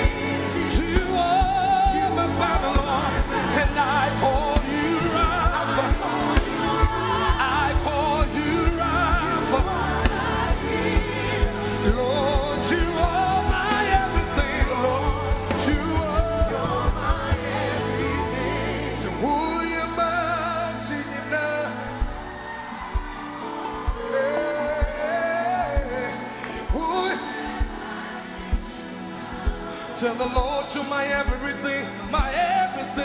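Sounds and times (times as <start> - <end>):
band with bass and drums: 0.0 - 20.9
person singing with vibrato: 0.0 - 22.4.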